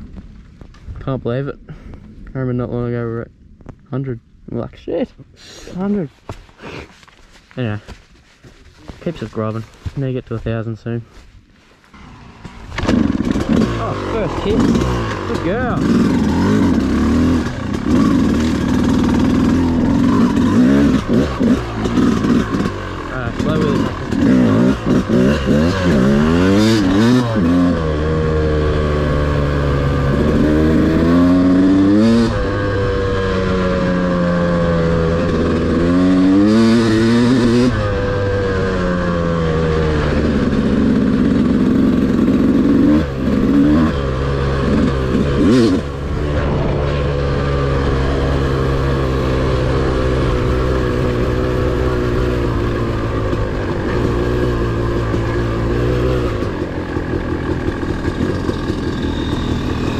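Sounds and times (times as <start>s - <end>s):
dirt bike engine revving: 11.9s - 59.9s.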